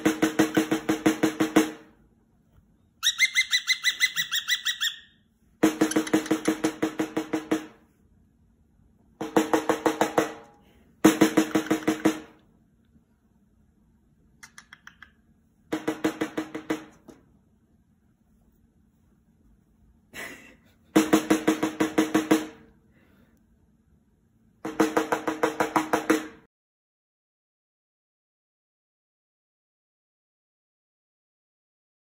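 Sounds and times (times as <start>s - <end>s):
snare drum rolls: 0.0s - 2.0s, 5.6s - 7.8s, 9.2s - 12.4s, 15.7s - 17.2s, 21.0s - 22.7s, 24.6s - 26.5s.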